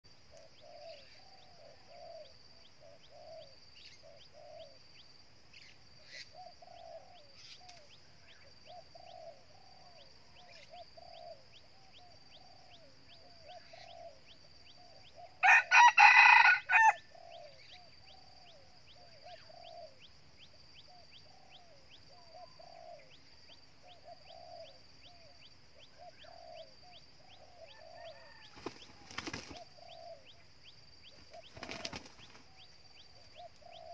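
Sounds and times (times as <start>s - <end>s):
rooster crowing: 15.4s - 17.2s, 27.6s - 29.1s
high insect buzz: 30.4s - 32.8s.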